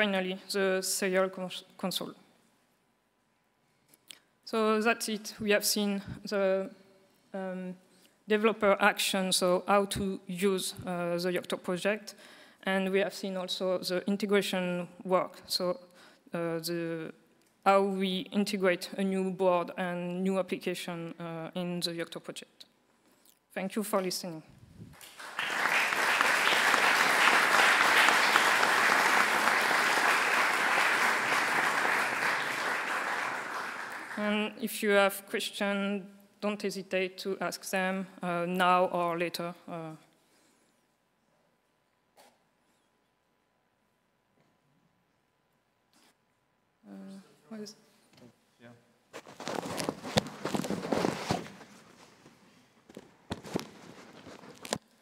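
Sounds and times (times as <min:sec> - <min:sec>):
audience applauding: 0:25.0 - 0:34.2
microphone handling rustling: 0:49.1 - 0:54.9.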